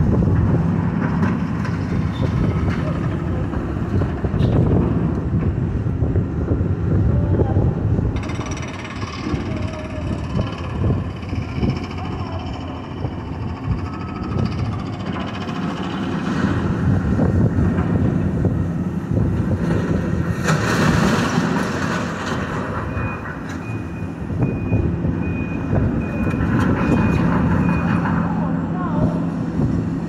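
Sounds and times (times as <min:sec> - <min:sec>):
excavator diesel engine running: 0:00.0 - 0:30.0
reversing alarm beeping: 0:13.7 - 0:15.2, 0:22.8 - 0:28.1
crunching and clattering metal debris: 0:19.7 - 0:22.8.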